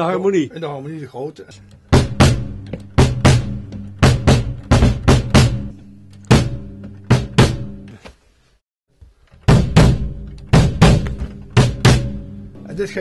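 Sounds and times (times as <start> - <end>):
bass drum kicks: 1.9 - 5.7, 6.3 - 7.8, 9.5 - 12.5.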